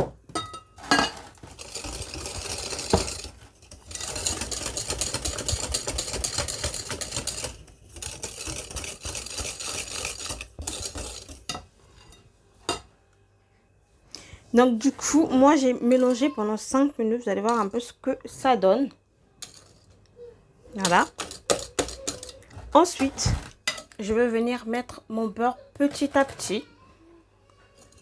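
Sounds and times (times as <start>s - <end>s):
whisk rattling in glass bowl: 0.9s - 11.6s, 20.8s - 24.0s, 25.8s - 26.6s.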